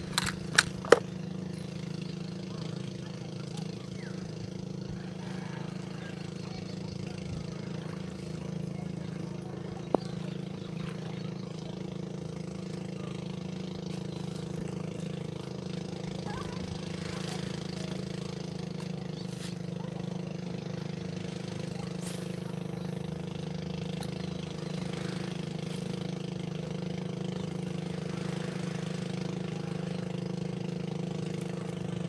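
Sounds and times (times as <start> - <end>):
engine idling: 0.0 - 32.0.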